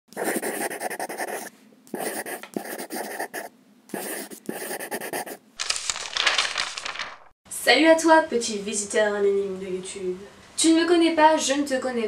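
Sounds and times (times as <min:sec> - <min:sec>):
pen scratching on paper: 0:00.1 - 0:05.4
bright rustling: 0:05.6 - 0:07.3.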